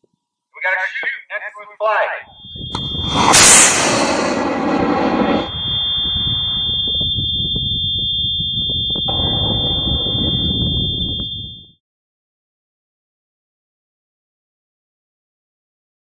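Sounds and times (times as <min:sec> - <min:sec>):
steady high-pitched tone: 0:02.2 - 0:11.6
rocket motor rushing hiss: 0:02.7 - 0:06.1.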